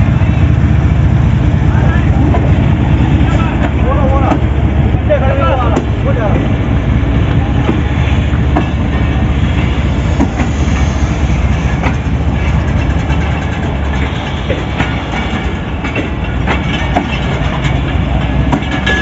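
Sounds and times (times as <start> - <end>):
train coaches rumbling past: 0.0 - 19.0
wheel clacks over rail joints: 11.5 - 19.0.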